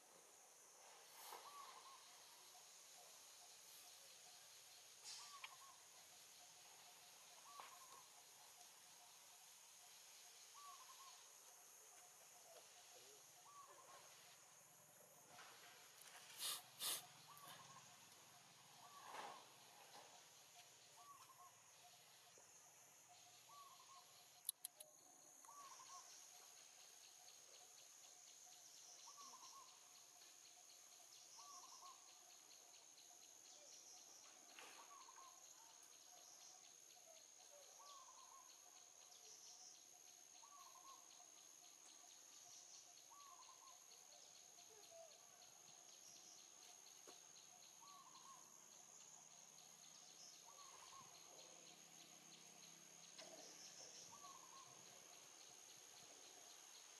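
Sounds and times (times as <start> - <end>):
bird call: 16.3 - 17.8.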